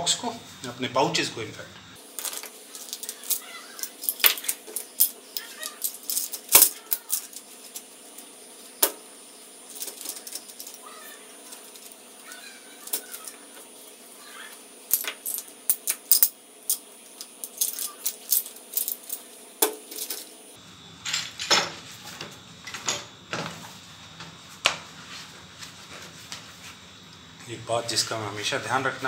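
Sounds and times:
vinyl mat rolled up: 0:21.8 - 0:26.9.

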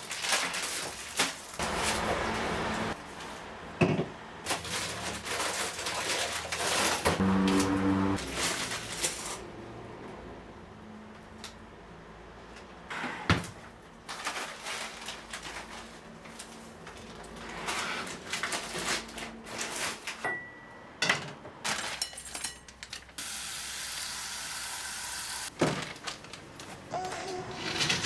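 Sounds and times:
plastic bag rustling: 0:00.0 - 0:03.5, 0:04.4 - 0:09.5, 0:14.0 - 0:20.2, 0:25.5 - 0:28.0.

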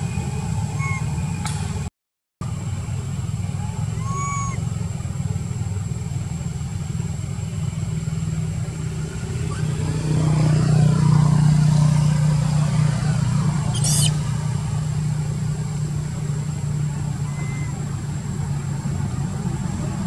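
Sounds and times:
engine droning: 0:00.0 - 0:20.0
brief high squeak: 0:00.7 - 0:01.1, 0:13.7 - 0:14.2.

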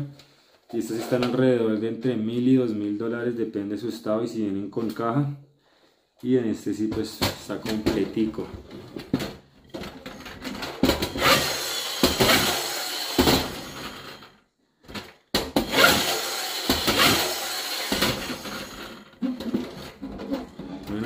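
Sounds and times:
friction toy car whirring: 0:10.9 - 0:14.4, 0:15.6 - 0:21.0.

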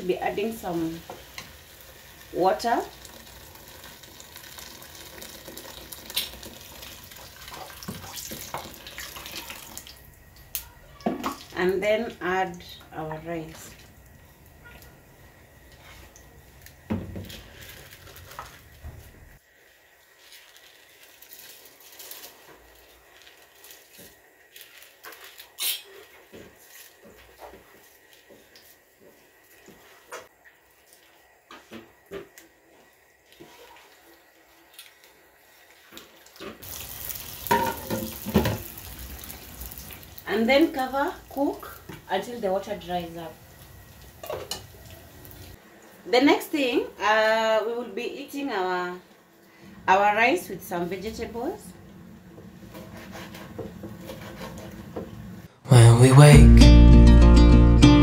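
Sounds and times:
water pouring into liquid: 0:02.9 - 0:10.0.

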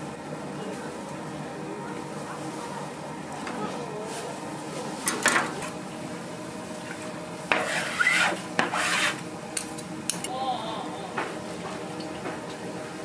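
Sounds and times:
utensil scraping a work surface: 0:07.5 - 0:09.2.

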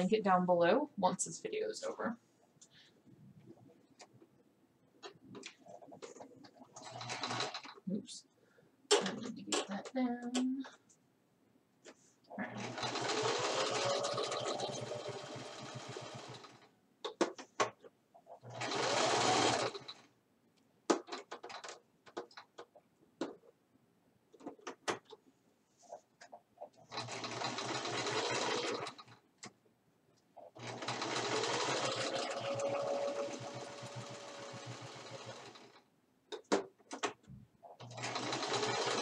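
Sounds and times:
sewing machine stitching: 0:05.6 - 0:07.8, 0:12.5 - 0:16.6, 0:18.3 - 0:20.1, 0:26.8 - 0:29.2, 0:30.4 - 0:35.8, 0:37.7 - 0:39.0.

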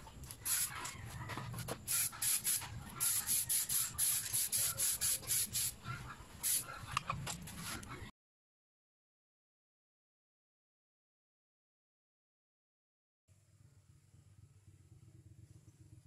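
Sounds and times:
sandpaper rasping on metal: 0:01.9 - 0:05.8.

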